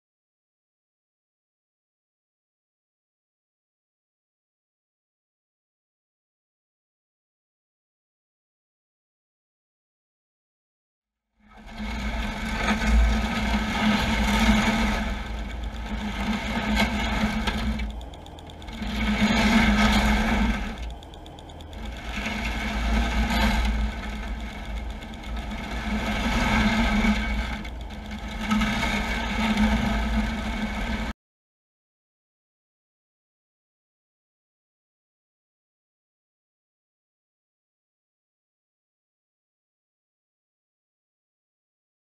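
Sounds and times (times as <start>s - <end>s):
underwater mechanical drone: 11.4s - 31.2s.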